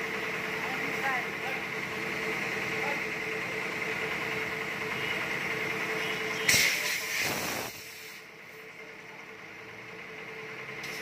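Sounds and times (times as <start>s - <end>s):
steady mechanical hum: 0.0s - 11.0s
loud hiss: 6.5s - 8.3s.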